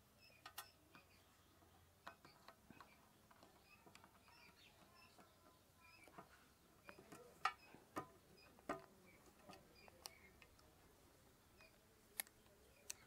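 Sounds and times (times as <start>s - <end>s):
faint high bird chirps: 0.1s - 10.5s.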